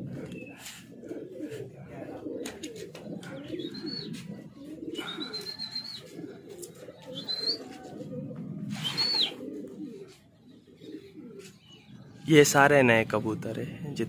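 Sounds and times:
pigeons cooing: 0.0 - 14.0
short high whistles: 8.8 - 9.4.

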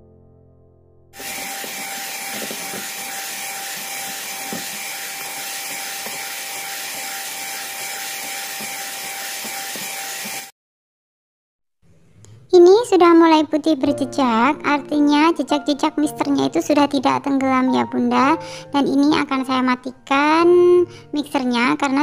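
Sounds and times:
electric hand mixer whining: 1.2 - 10.5.

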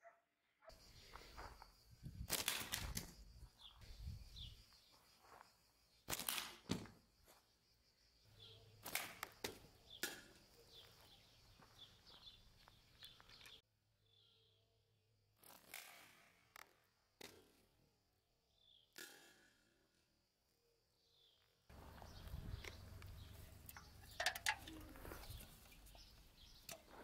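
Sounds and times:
slingshot band snaps: 2.3 - 3.2, 8.8 - 10.3
shot striking metal cans: 23.7 - 25.0.

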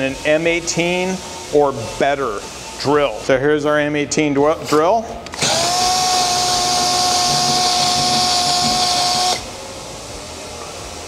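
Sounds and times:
cordless drill whirring: 5.3 - 9.5.

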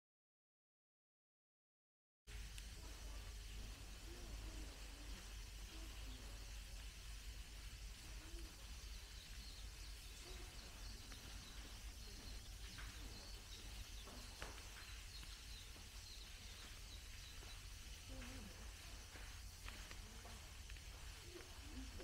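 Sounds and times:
quiet hiss: 2.3 - 22.0
steady low rumble: 2.3 - 22.0
faint high bird chirps: 7.9 - 20.4.

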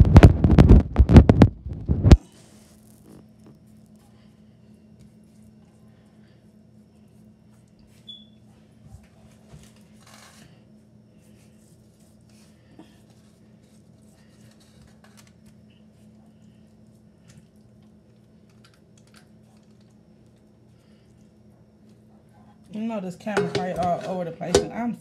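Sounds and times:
hands tapping and crinkling foil: 0.0 - 3.7, 12.0 - 15.8, 17.2 - 21.0
steady low hum: 0.0 - 25.0.

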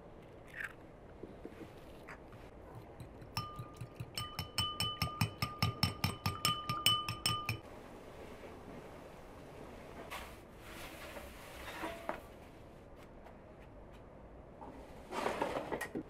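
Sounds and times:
fork beating egg in bowl: 2.6 - 7.6.

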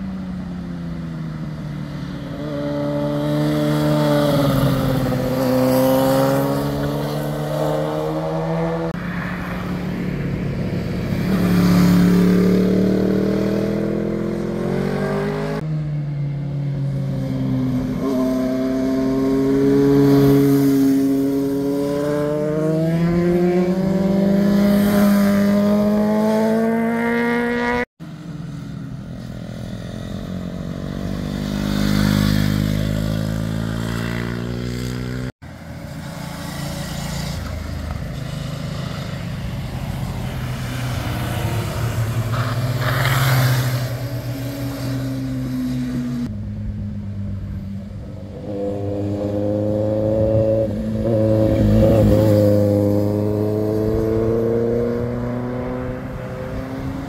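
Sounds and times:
motorcycles passing: 0.0 - 57.0.

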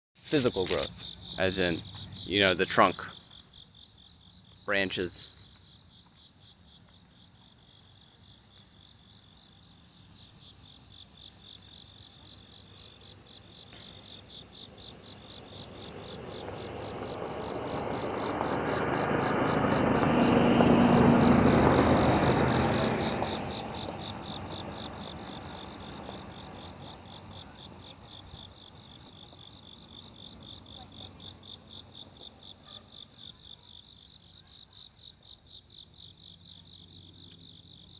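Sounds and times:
crickets chirring: 0.2 - 37.9.

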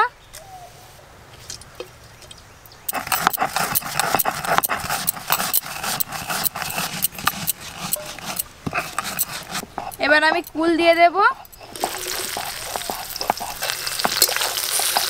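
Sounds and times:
stone pestle crushing seeds: 2.9 - 15.0.

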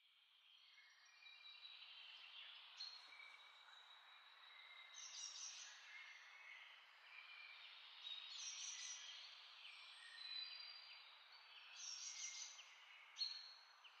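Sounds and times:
small birds chirping: 7.6 - 14.0.

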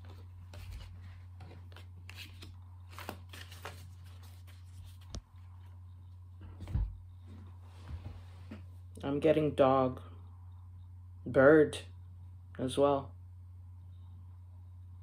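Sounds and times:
cards being shuffled: 0.0 - 5.5
steady low hum: 0.0 - 15.0.

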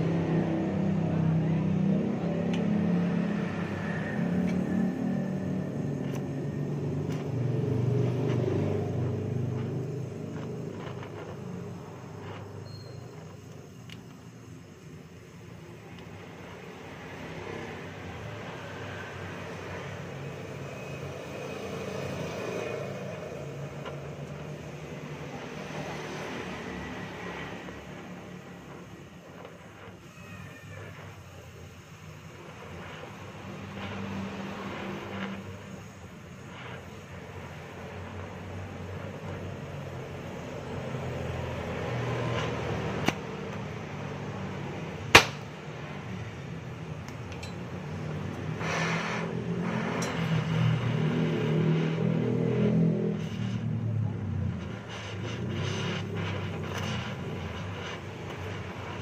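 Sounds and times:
welding torch hissing: 0.0 - 59.0
sharp metallic tap: 45.1 - 45.5.

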